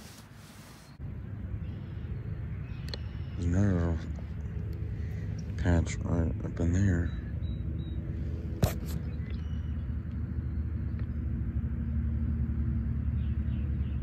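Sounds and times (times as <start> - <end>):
faint bird chirps: 1.6 - 4.2, 6.8 - 11.1.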